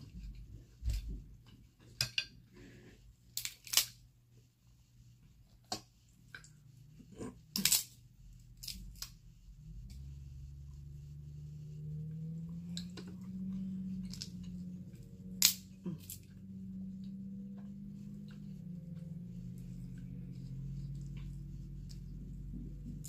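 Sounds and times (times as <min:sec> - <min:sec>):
steady low hum: 0:00.0 - 0:23.0
crab shell cracking: 0:03.4 - 0:04.0.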